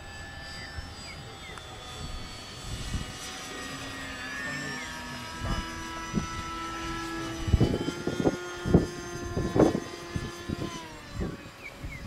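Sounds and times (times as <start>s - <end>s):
model airplane motor whine: 0.0s - 12.0s
wind buffeting microphone: 1.7s - 3.3s, 5.2s - 12.0s.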